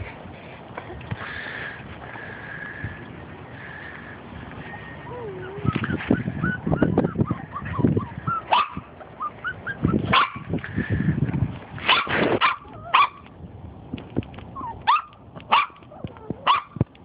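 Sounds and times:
puppies yipping and barking: 0:04.6 - 0:10.5, 0:14.6 - 0:16.8
squeaky puppy whimpers: 0:05.1 - 0:08.6, 0:14.6 - 0:14.8.

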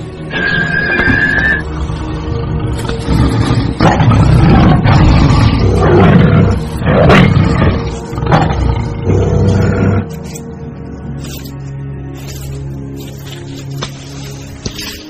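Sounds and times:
tiger roaring and snarling: 0:00.3 - 0:10.4.

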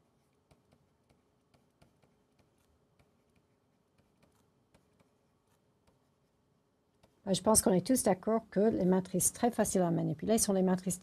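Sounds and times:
marker pen writing on whiteboard: 0:00.0 - 0:07.3.

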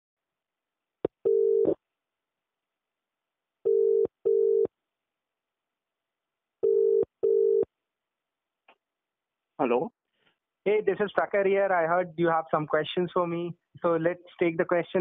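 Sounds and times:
telephone ringback tone: 0:01.3 - 0:01.8, 0:03.7 - 0:04.7, 0:06.6 - 0:07.6.

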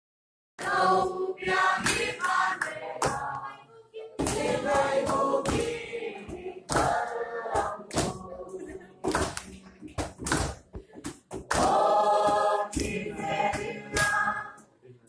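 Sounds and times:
group singing: 0:00.6 - 0:09.7, 0:11.4 - 0:14.7
hands clapping: 0:01.6 - 0:03.5, 0:04.2 - 0:05.9, 0:06.7 - 0:08.2, 0:09.0 - 0:14.3.

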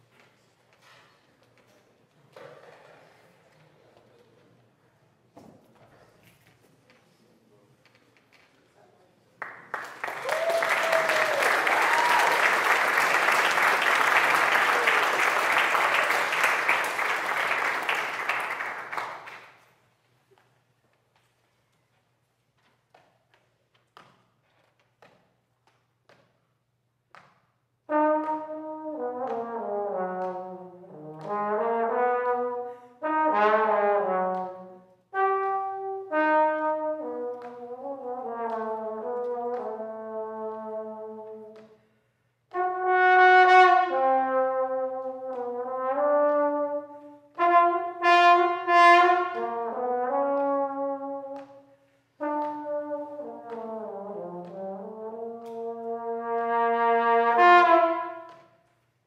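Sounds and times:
trombone playing: 0:27.9 - 0:41.6, 0:42.5 - 0:51.4, 0:52.2 - 0:58.3.

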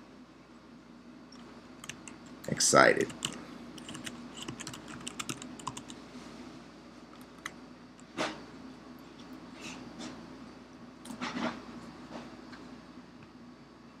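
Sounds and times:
typing on computer keyboard: 0:01.8 - 0:02.3, 0:03.1 - 0:06.0.

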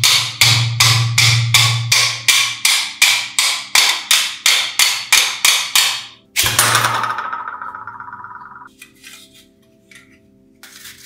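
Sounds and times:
hammer striking metal: 0:00.0 - 0:08.7.

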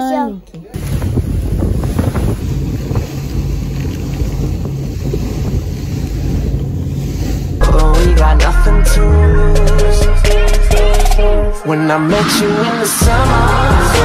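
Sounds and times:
wind buffeting microphone: 0:00.7 - 0:07.6
motorboat engine: 0:00.8 - 0:11.6
music: 0:07.6 - 0:14.0.

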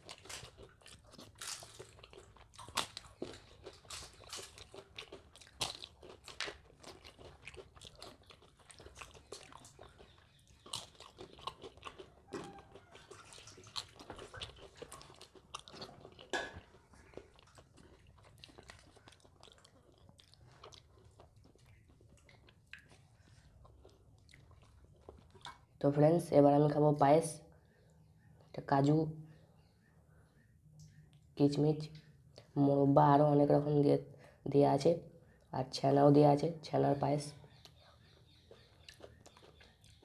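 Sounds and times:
crunching and chewing papad: 0:00.0 - 0:25.8, 0:37.4 - 0:40.0.

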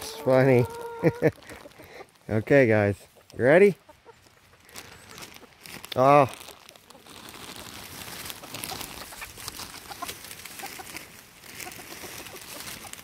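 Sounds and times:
chickens clucking softly: 0:00.0 - 0:05.6, 0:08.7 - 0:13.0
ticks and rustles: 0:03.0 - 0:13.0.

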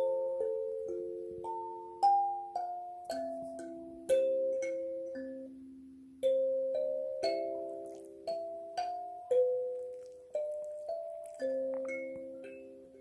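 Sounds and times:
kalimba melody: 0:00.0 - 0:13.0.

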